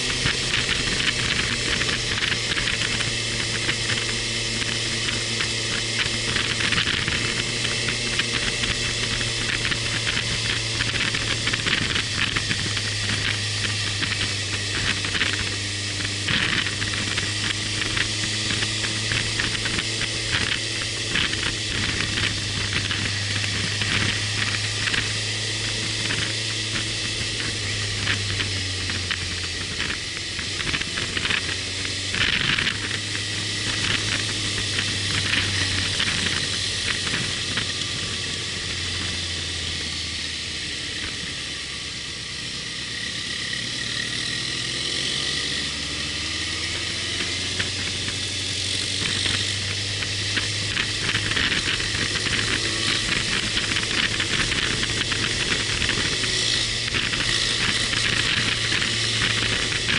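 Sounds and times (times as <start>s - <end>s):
wind rushing over microphone: 0.0s - 41.3s
motorcycle engine drone: 0.0s - 59.9s.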